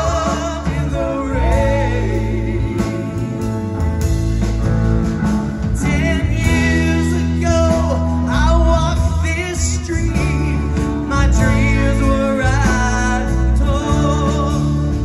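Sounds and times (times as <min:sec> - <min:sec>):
woman singing lead: 0:00.0 - 0:03.8
live band playing: 0:00.0 - 0:15.0.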